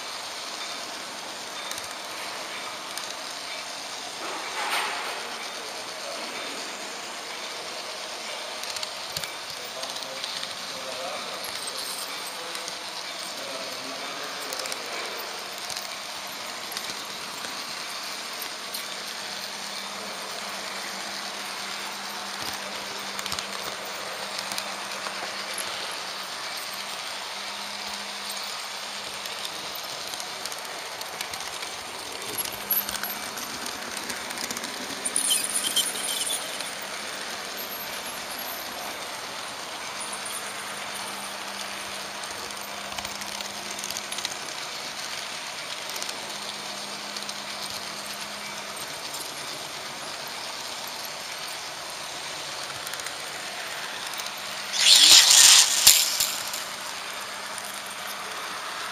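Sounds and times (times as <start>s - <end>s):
model train wheels rattling: 0.0s - 58.9s
high-pitched noise: 54.7s - 56.8s.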